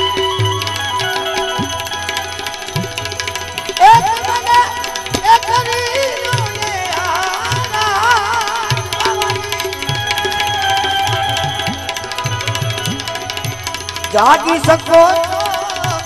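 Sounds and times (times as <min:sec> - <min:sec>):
sliding wavering melody: 0:00.0 - 0:16.0
hand drum beat: 0:03.8 - 0:06.9.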